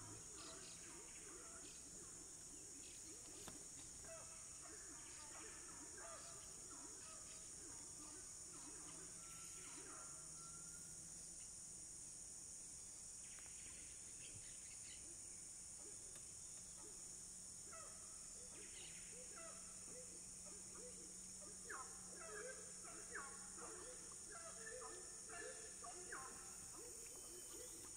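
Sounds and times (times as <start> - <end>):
cicadas and insects droning: 0.0 - 27.9
bird calls: 17.7 - 27.9.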